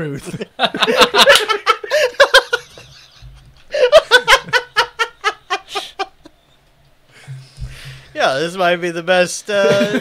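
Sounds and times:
people giggling: 0:00.2 - 0:06.4, 0:09.7 - 0:10.0.

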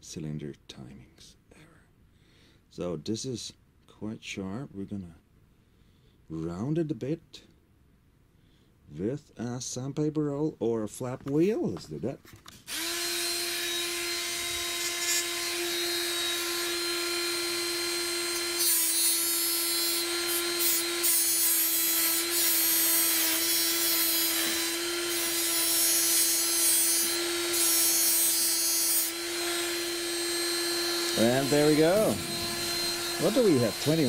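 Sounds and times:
rotary grinder whining: 0:12.7 - 0:34.0
bit grinding steel: 0:17.8 - 0:34.0.

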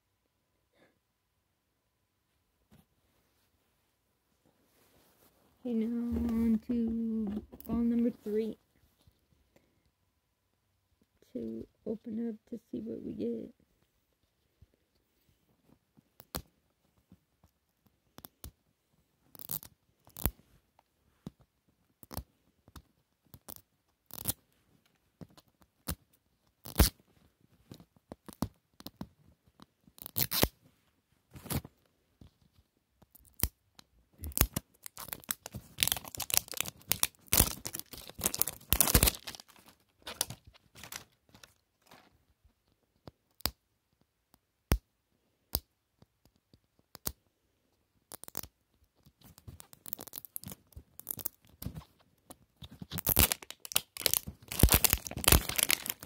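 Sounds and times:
plastic wrapper crinkling and ripping: 0:30.0 - 0:30.5, 0:34.2 - 0:42.2, 0:49.1 - 0:56.0.

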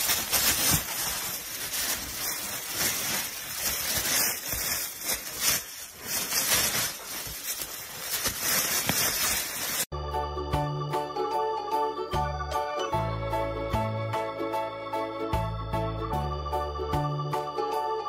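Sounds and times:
leaves and twigs rustling and crackling: 0:00.0 - 0:09.9.

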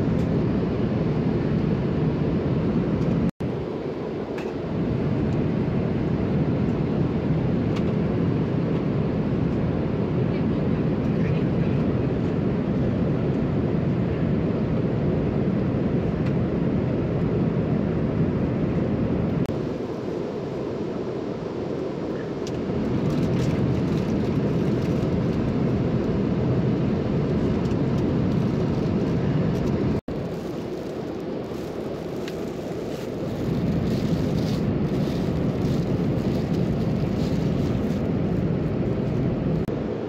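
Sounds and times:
airplane cabin roar: 0:00.0 - 0:40.0
plastic wrapping crinkling: 0:30.1 - 0:38.4.

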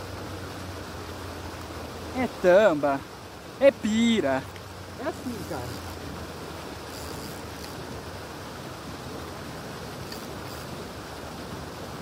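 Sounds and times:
rushing outdoor noise: 0:00.0 - 0:12.0
faint high clicks: 0:10.0 - 0:10.7.

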